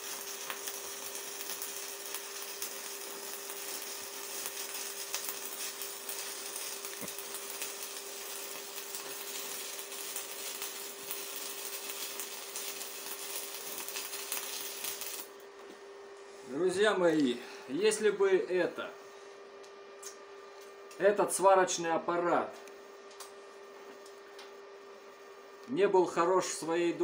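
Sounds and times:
welding arc crackling and hissing: 0.0 - 15.7
welder hum: 0.0 - 27.0.

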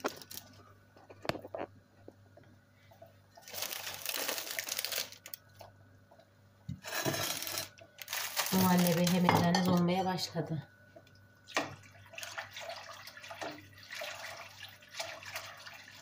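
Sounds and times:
crinkly rustling: 0.0 - 1.7, 3.4 - 5.4, 6.8 - 9.8.

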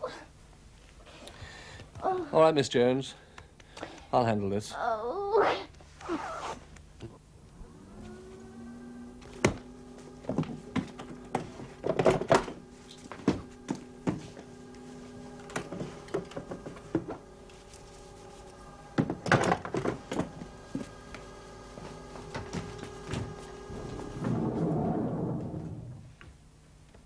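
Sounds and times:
paper shredder motor humming: 7.5 - 26.0.

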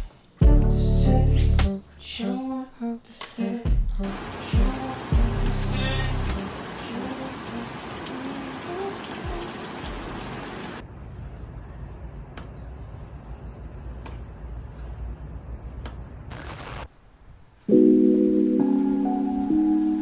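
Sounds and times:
rain on wooden deck: 3.8 - 10.8
water dripping: 4.0 - 10.8.

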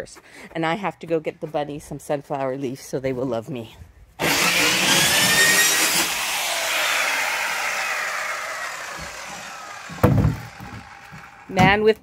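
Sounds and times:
circular saw spinning down: 4.2 - 11.6.

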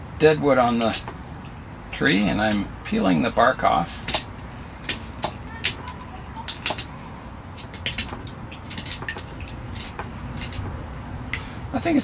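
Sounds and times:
knife scraping bark: 7.6 - 10.9.

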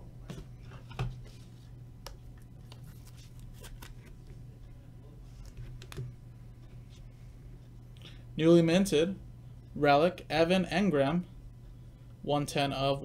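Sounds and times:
low hum: 0.0 - 12.6
cards clicking and rustling: 2.0 - 4.2.

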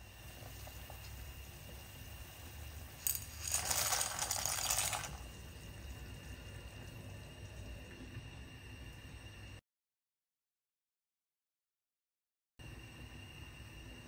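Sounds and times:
pasta rattling and splashing: 3.0 - 5.4.

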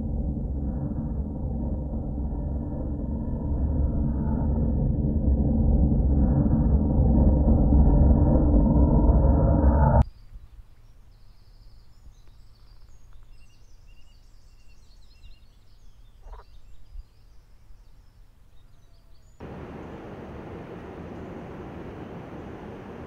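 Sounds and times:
low steady hum: 0.0 - 10.0, 19.2 - 23.0
faint birds chirping: 10.0 - 23.0
steady hiss of outdoor noise: 10.0 - 23.0.

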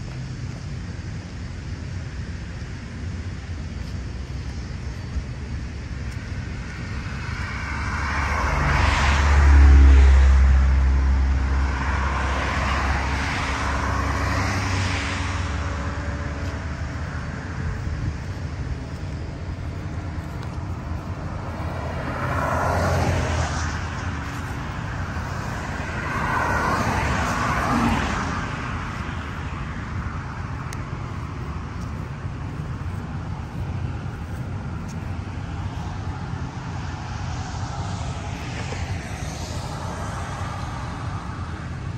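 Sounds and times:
cars passing on street: 0.0 - 41.9.

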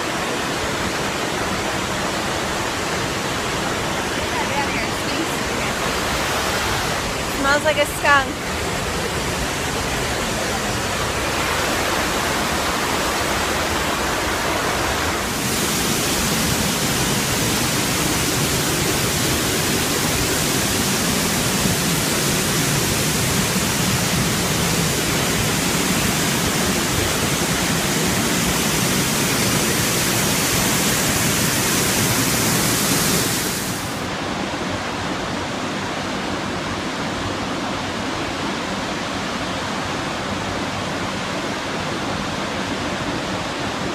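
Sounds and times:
waterfall rushing: 0.0 - 43.9.

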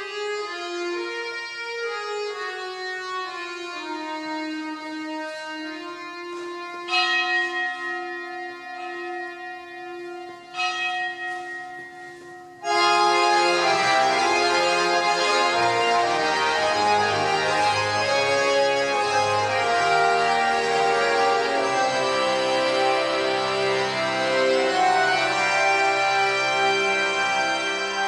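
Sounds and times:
organ music: 0.0 - 28.0
bell-like chimes: 6.9 - 12.7.

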